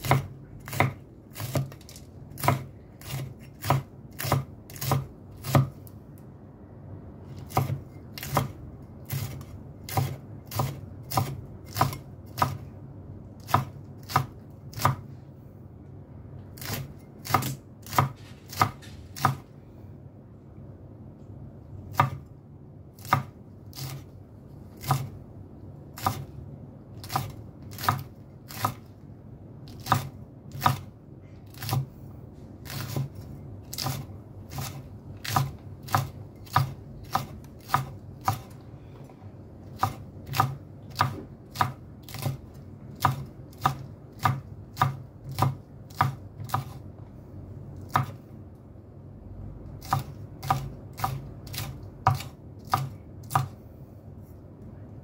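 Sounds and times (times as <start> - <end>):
knife chopping chilies: 0.0 - 5.9, 7.3 - 12.7, 13.4 - 15.1, 16.5 - 19.5, 21.9 - 22.3, 23.0 - 24.1, 24.7 - 25.2, 25.9 - 28.9, 29.6 - 31.9, 32.6 - 38.6, 39.6 - 46.8, 47.8 - 48.2, 49.7 - 53.6.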